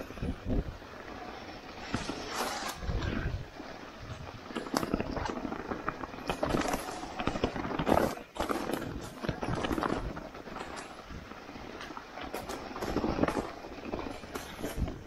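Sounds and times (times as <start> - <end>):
bike tyres crunching leaves: 0.0 - 15.0
wheels knocking on rocks: 0.0 - 15.0.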